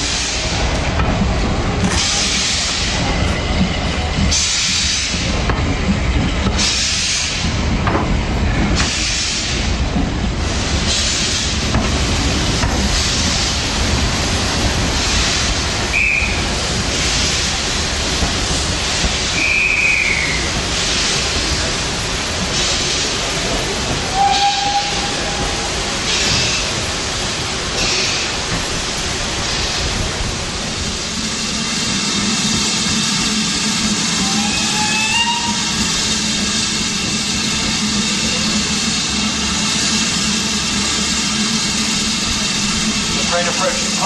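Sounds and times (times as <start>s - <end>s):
coaches rumbling on rails: 0.0s - 44.0s
steam locomotive exhaust hissing: 0.0s - 44.0s.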